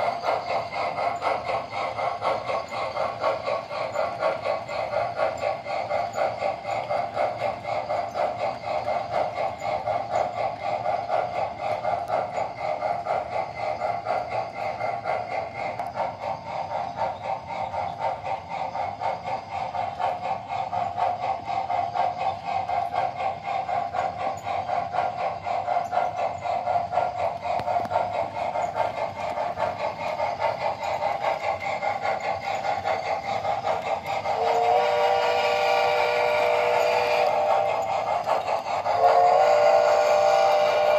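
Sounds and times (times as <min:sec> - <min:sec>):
model steam locomotive chuffing: 0:00.0 - 0:40.9
steam whistle: 0:34.3 - 0:37.5, 0:38.9 - 0:40.9.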